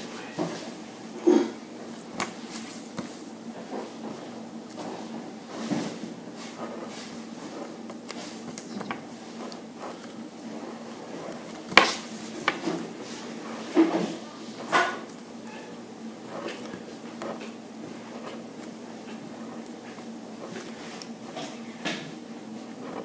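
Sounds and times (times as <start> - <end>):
steady low hum: 0.0 - 23.0
felt-tip pen scratching on paper: 6.4 - 11.6, 16.2 - 21.6, 22.6 - 23.0.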